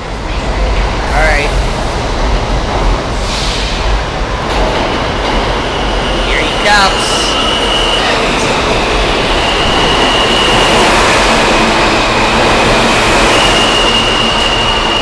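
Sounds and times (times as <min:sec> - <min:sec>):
train wheels rumbling on rail: 0:00.0 - 0:15.0
high-pitched squeal: 0:06.3 - 0:15.0.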